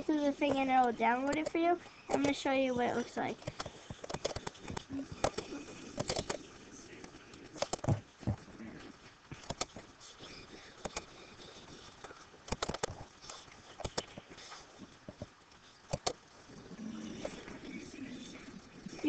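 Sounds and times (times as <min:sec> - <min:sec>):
computer mouse clicking: 0:00.4 - 0:02.4, 0:03.4 - 0:08.0, 0:09.3 - 0:09.8, 0:10.8 - 0:11.8, 0:12.5 - 0:15.3, 0:15.9 - 0:16.2.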